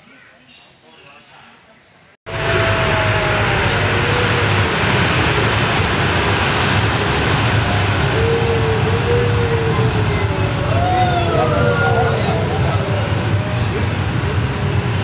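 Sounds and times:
toy train rumbling: 2.3s - 15.0s.

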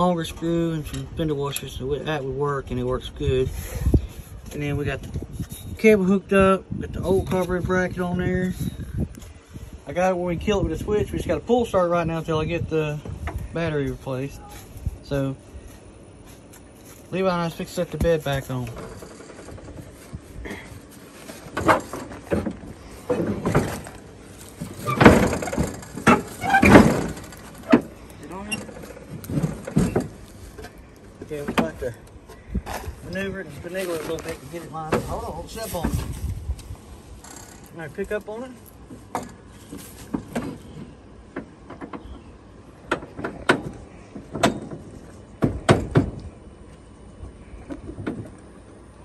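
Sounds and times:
sharp knocks and clanks: 21.2s - 31.9s, 42.8s - 46.2s.

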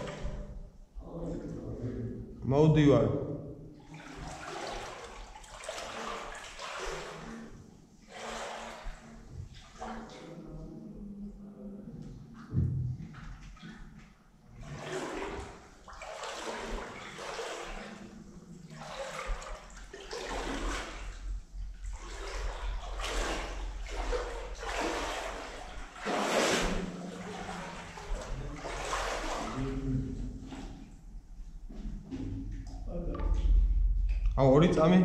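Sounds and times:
footsteps splashing through water: 0.0s - 0.7s, 3.8s - 10.3s, 12.3s - 30.9s.

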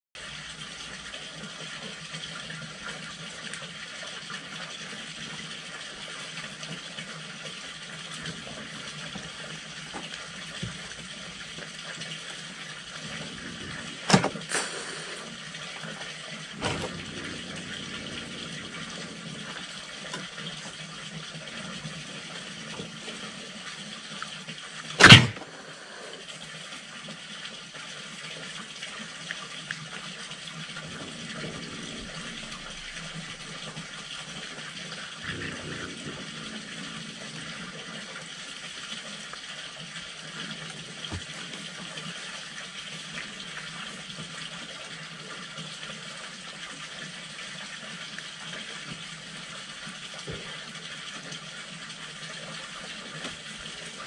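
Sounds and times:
steady hiss: 12.8s - 24.1s, 25.0s - 26.4s
short harsh burst: 13.2s - 15.4s, 25.0s - 26.2s.

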